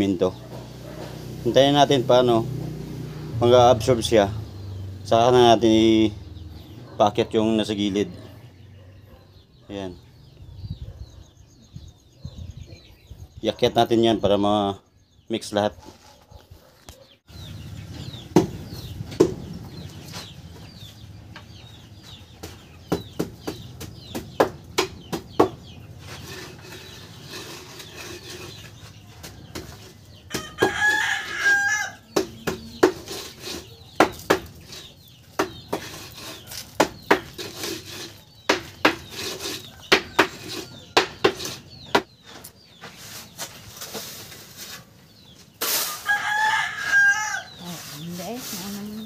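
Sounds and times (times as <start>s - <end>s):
sharp metal knocks: 22.4s - 25.7s, 32.1s - 36.0s, 38.4s - 42.1s
rooster crowing: 30.3s - 32.1s, 45.9s - 47.6s.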